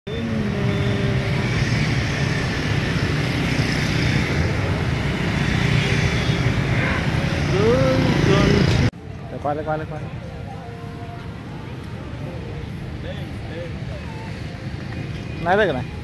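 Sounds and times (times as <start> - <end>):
motorbikes and scooters passing: 0.1 - 8.9
dense street traffic: 0.1 - 16.0.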